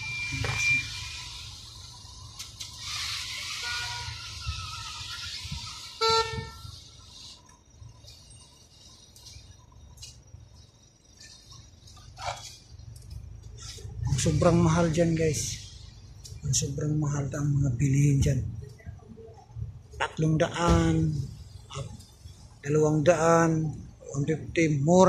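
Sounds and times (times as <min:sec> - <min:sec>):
car horn honk: 0:03.6 - 0:04.2, 0:06.0 - 0:06.7
passing cars hissing: 0:13.6 - 0:16.7.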